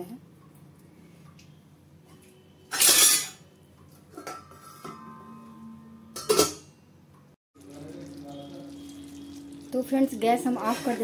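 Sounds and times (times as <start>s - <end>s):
glass lid clinking with metallic ring: 6.1s - 6.7s.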